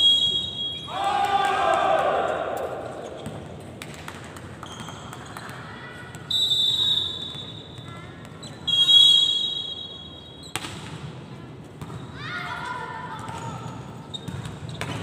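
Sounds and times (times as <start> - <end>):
referee's whistle blasts: 0.0 - 1.0, 6.3 - 7.9, 8.6 - 10.5.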